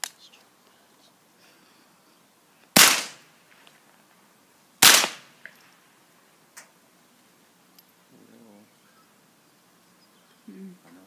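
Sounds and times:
rifle shots with echo: 2.8s - 3.2s, 4.8s - 5.3s.

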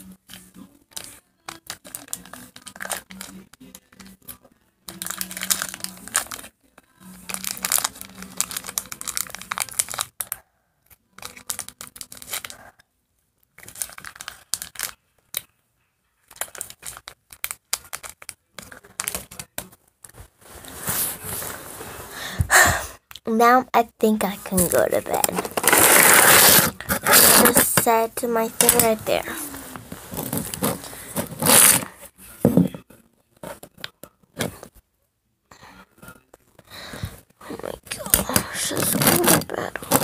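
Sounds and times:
wrapper crinkling: 4.9s - 6.5s, 7.3s - 10.2s, 13.6s - 15.0s, 16.3s - 19.3s, 24.6s - 27.8s.

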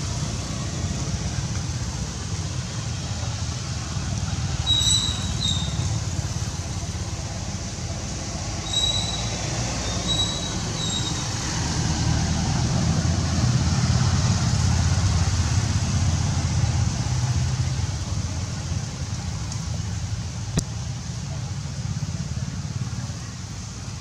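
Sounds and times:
low vehicle rumble: 0.0s - 24.0s
short high squeaks: 4.7s - 6.0s, 8.7s - 11.3s.

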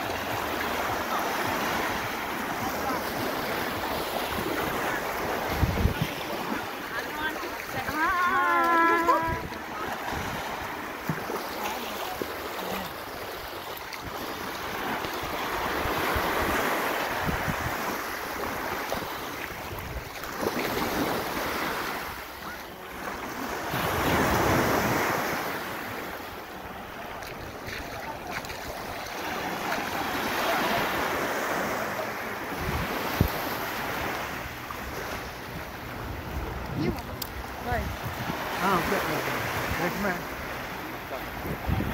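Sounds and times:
small waves washing: 0.0s - 41.9s
wind on microphone: 5.4s - 6.4s, 15.6s - 18.1s, 32.5s - 33.5s, 35.4s - 38.5s, 41.3s - 41.9s.

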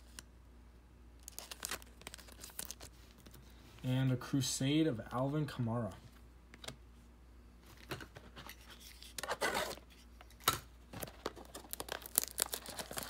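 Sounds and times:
trading cards being handled: 7.8s - 10.4s.

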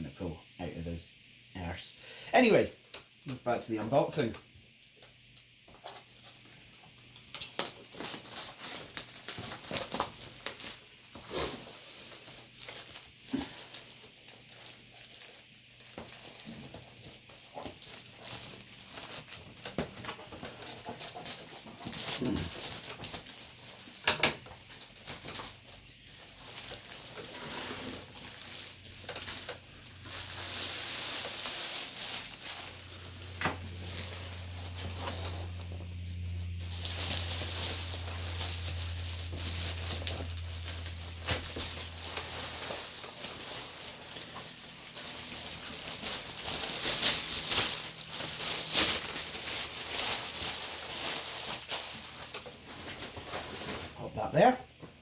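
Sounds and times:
plastic bag rustling and crinkling: 5.7s - 54.5s
steady low hum: 25.2s - 51.5s.

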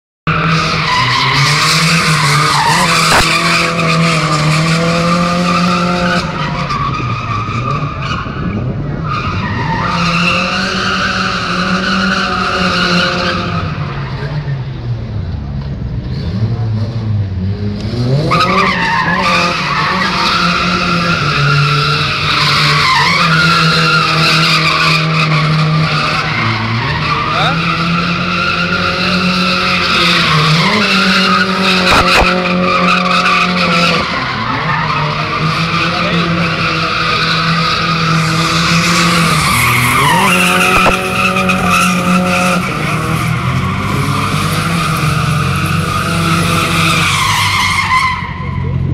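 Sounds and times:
car engine revving hard: 0.3s - 6.6s, 16.1s - 48.9s.

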